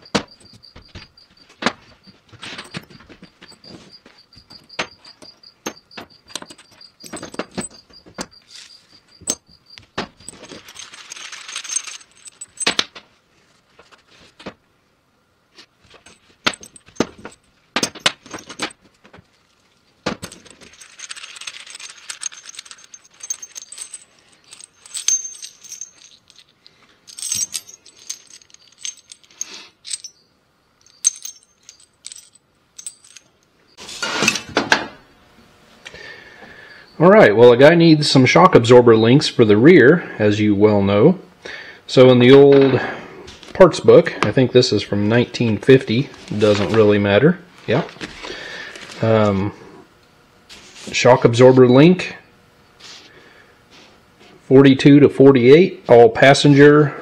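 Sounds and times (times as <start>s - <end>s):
metal bolts clinking: 0.0s - 3.8s, 4.4s - 13.0s, 15.9s - 18.8s, 20.2s - 30.2s, 30.8s - 33.5s.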